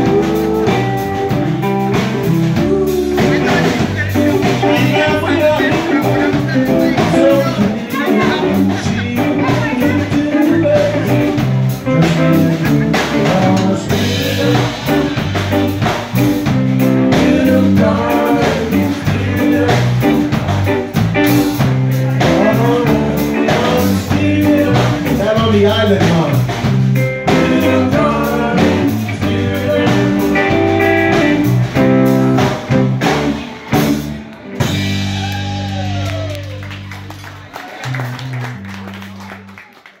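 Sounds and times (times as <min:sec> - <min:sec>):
person singing: 0:00.0 - 0:15.8, 0:16.4 - 0:20.8, 0:21.4 - 0:26.4, 0:27.2 - 0:33.4
drum kit: 0:00.0 - 0:39.6
electric bass: 0:00.0 - 0:39.6
electric guitar: 0:00.0 - 0:39.9.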